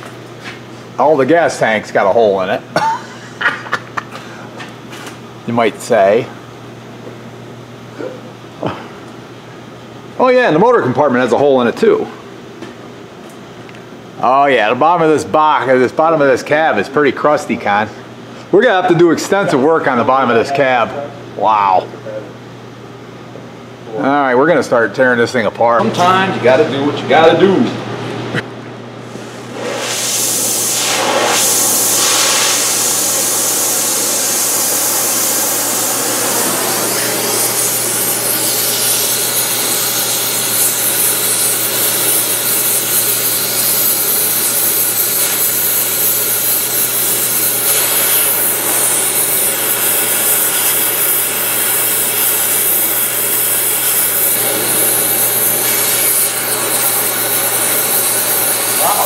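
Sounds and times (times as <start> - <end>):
cutting torch hissing: 29.1 - 59.0.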